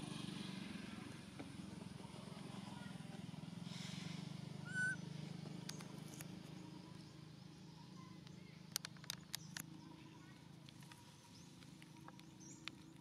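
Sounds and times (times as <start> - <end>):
high-pitched animal squeak: 4.7 - 5.0
sharp clicks: 8.2 - 9.8, 10.6 - 13.0.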